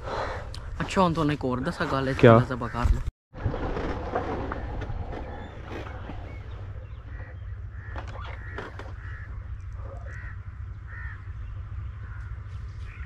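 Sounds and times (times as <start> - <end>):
low rumble: 3.4 - 13.0
crows cawing: 6.8 - 13.0.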